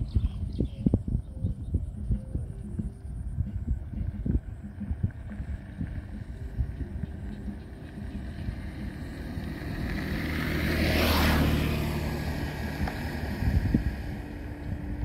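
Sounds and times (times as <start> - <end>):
low rumble: 0.0 - 15.0
engine passing by: 2.0 - 15.0.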